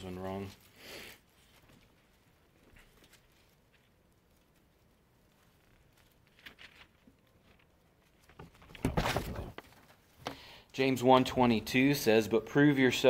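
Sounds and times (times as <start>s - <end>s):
paper pages turning: 1.4s - 10.1s.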